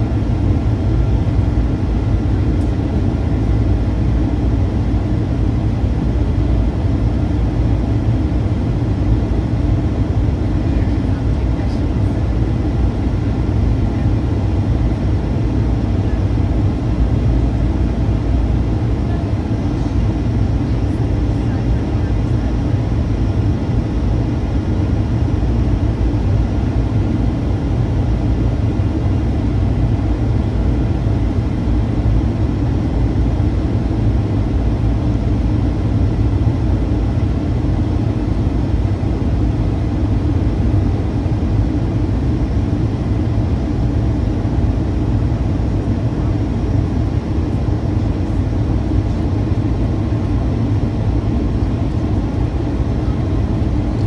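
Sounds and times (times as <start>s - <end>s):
airplane cabin rumble: 0.0s - 54.0s.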